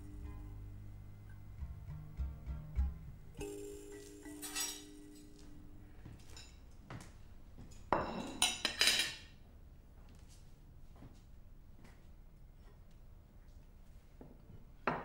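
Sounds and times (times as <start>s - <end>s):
dishes and cutlery clinking: 3.4s - 6.8s, 7.6s - 9.4s.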